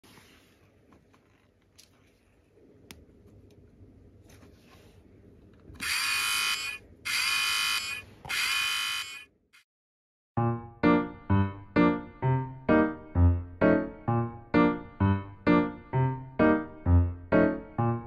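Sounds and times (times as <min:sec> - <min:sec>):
loud buzzer blasts: 0:05.8 - 0:09.3.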